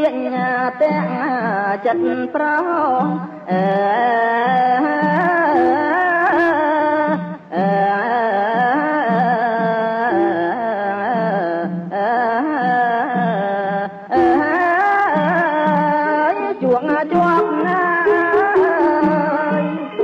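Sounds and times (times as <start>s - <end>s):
person singing: 0.0s - 20.0s
traditional ensemble accompaniment: 14.1s - 20.0s.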